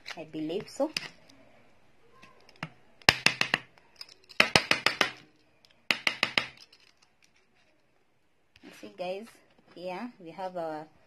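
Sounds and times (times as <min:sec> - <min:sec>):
utensil tapping on hard surface: 0:03.0 - 0:03.7, 0:04.4 - 0:05.2, 0:05.9 - 0:06.6.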